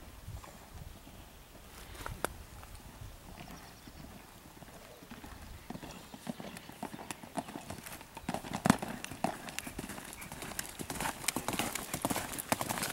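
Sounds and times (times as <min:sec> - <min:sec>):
horse hoofbeats on sand: 0:03.4 - 0:12.9.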